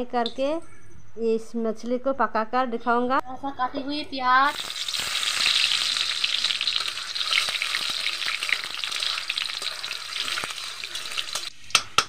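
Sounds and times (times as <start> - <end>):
onion sizzling in hot oil: 4.4 - 12.0.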